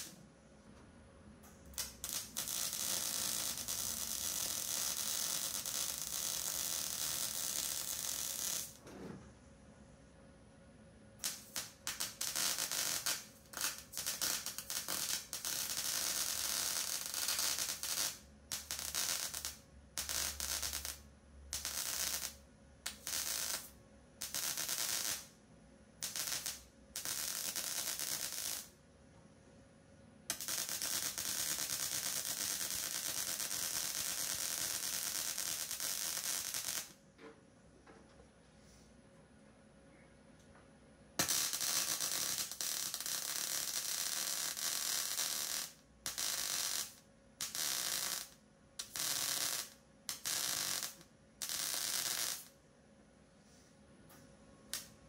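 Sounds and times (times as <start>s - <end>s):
wire-feed welder crackling: 1.6s - 8.8s, 11.2s - 25.3s, 26.0s - 28.7s, 30.3s - 37.0s, 41.2s - 52.5s, 54.7s - 55.0s.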